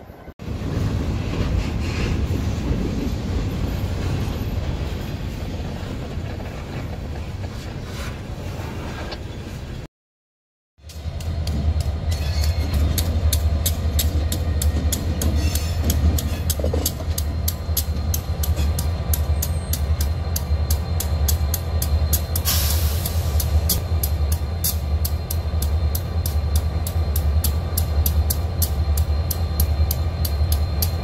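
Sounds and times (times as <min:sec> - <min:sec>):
diesel locomotive engines rumbling: 0:00.0 - 0:09.9, 0:10.8 - 0:31.0
regular clicking: 0:12.8 - 0:31.0
short hiss: 0:22.4 - 0:23.5.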